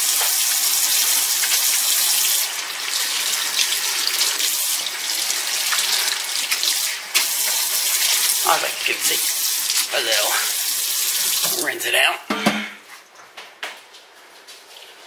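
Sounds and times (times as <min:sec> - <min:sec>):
faucet water running into sink: 0:00.0 - 0:11.9.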